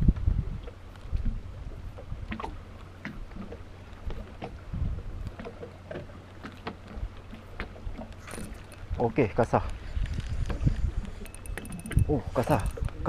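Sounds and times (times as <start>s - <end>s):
wind rumble on microphone: 0.0s - 5.5s, 6.9s - 13.0s
light clicks and taps: 5.2s - 13.0s.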